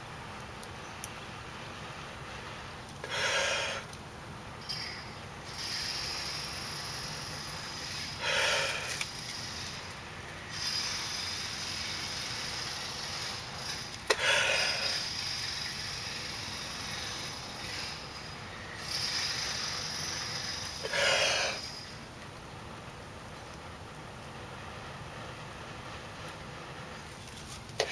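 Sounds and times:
person blowing on tinder: 7.9s - 9.1s, 19.1s - 21.8s.

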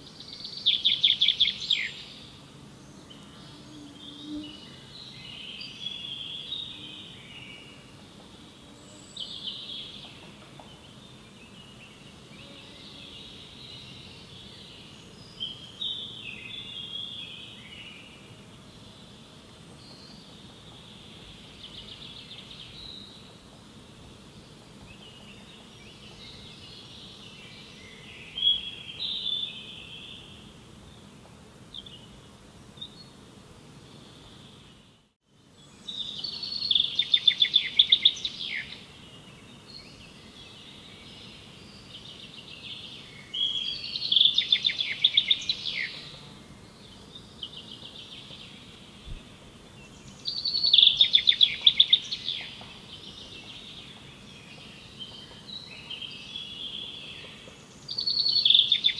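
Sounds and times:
songbird singing trills: 0.0s - 7.9s, 35.6s - 58.9s
outdoor background hum: 0.0s - 58.9s.

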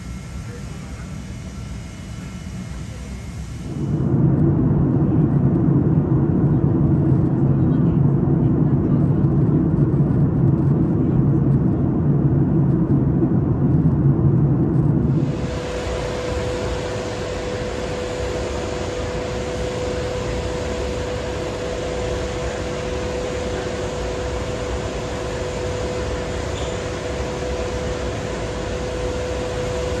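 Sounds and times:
constant hum: 0.0s - 30.0s
cabin air rushing: 14.9s - 30.0s.

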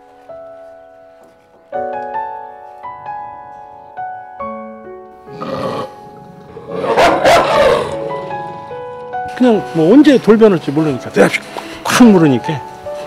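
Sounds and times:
soft piano music: 0.0s - 13.0s
dog growling aggressively: 5.3s - 9.0s.

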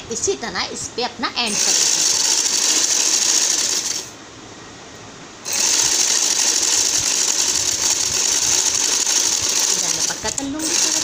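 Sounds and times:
sewing machine running: 1.5s - 4.1s, 5.5s - 11.0s.

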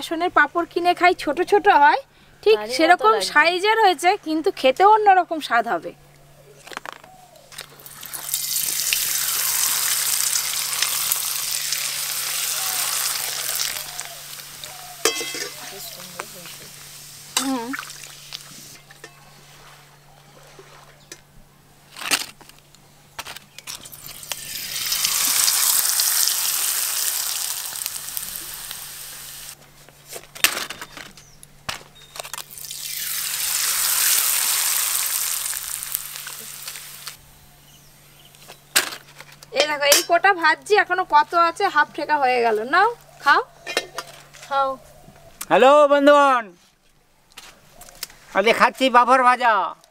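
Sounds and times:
oil bubbling: 7.8s - 15.8s, 17.0s - 18.5s, 23.9s - 29.6s, 32.4s - 37.2s
food sizzling in hot oil: 7.8s - 18.6s, 23.9s - 29.6s, 32.5s - 37.2s.

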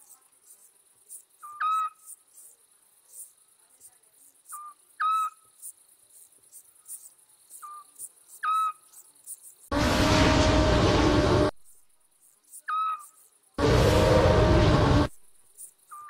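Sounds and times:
crickets chirring: 0.0s - 9.7s, 11.6s - 16.0s
loud rushing sound effect: 9.7s - 11.6s, 13.6s - 15.2s
low drone: 9.7s - 11.6s, 13.6s - 15.3s.

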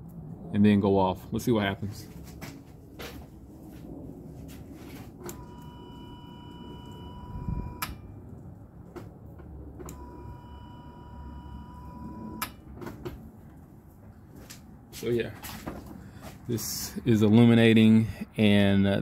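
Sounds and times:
fuel pump high-pitched hum: 4.8s - 13.2s.

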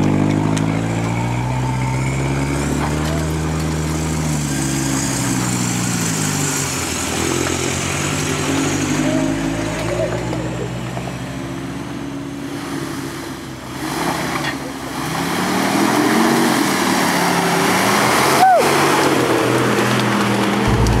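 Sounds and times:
engine revving at low speed: 11.4s - 21.0s.

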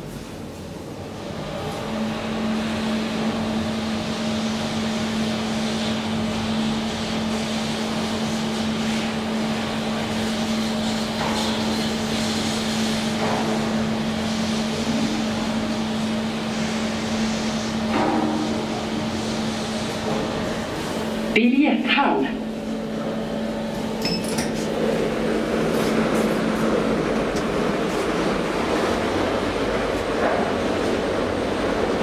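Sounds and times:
elevator rushing noise: 12.0s - 32.0s
elevator motor hum: 12.9s - 32.0s.

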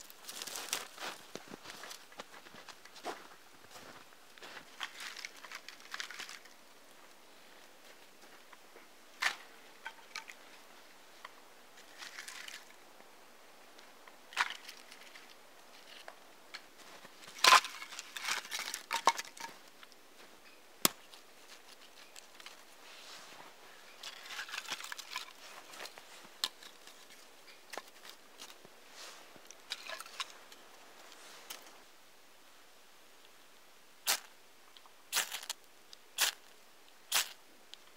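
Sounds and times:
crunching snow: 0.0s - 8.5s, 9.2s - 12.8s, 14.3s - 31.9s, 35.1s - 37.4s.

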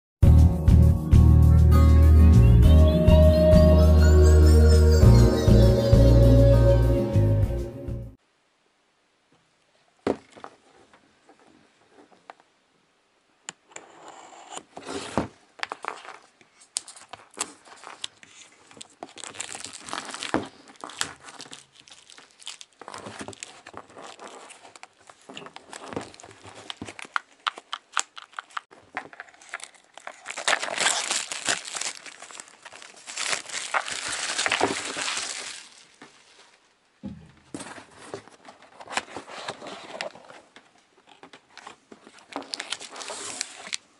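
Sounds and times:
plastic wrap crinkling and tearing: 14.9s - 36.7s, 41.6s - 43.9s.

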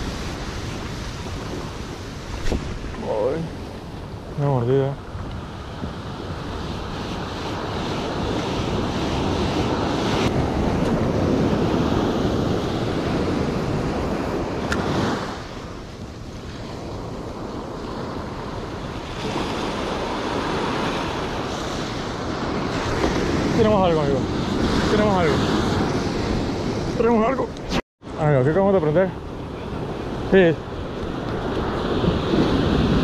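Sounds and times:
ocean surf breaking: 0.0s - 33.0s
wind rumbling on microphone: 0.0s - 33.0s.

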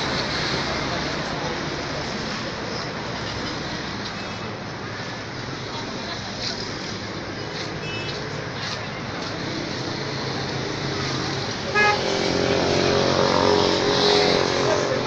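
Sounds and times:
street traffic: 0.0s - 15.0s
vehicle running close by: 5.6s - 15.0s
car horn toot: 11.7s - 12.1s.

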